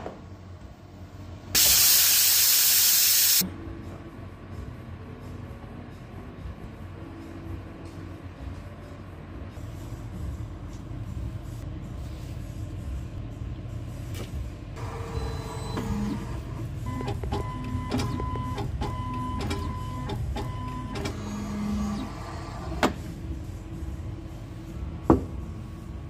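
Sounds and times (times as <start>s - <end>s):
steady low rumble: 3.4s - 14.8s, 23.0s - 26.0s
brief motor tones: 14.8s - 22.2s.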